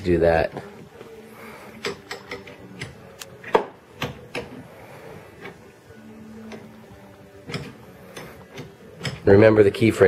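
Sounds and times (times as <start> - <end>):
tool handling: 1.7 - 4.7, 7.4 - 9.4
ratchet wrench clicking: 1.8 - 4.6.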